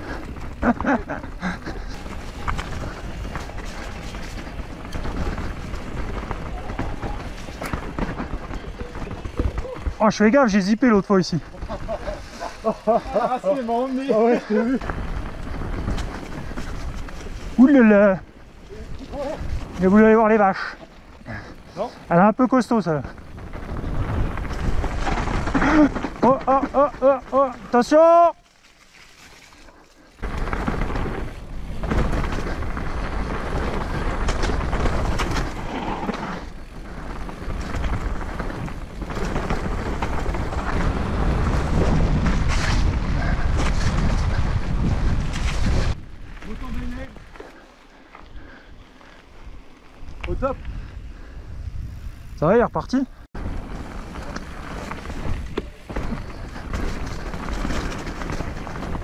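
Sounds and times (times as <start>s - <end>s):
bike knocking and rattling: 0.0s - 51.3s, 53.4s - 59.0s
bike tyres on ground: 0.0s - 59.0s
wind on microphone: 32.1s - 46.3s, 49.4s - 52.4s.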